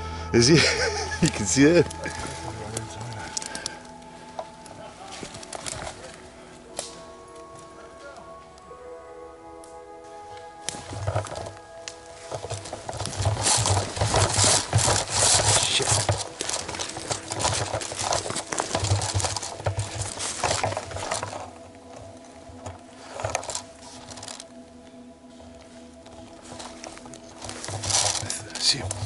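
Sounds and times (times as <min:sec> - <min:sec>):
clothing and undergrowth rustling: 0:00.0 - 0:29.0
short scuffle: 0:10.7 - 0:21.6.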